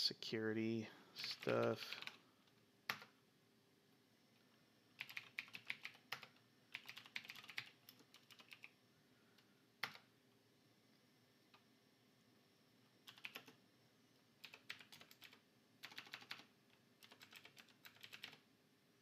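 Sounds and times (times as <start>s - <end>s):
typing on computer keyboard: 1.2s - 2.2s, 2.9s - 3.2s, 5.0s - 8.8s, 9.8s - 10.1s, 13.1s - 13.6s, 14.4s - 18.4s.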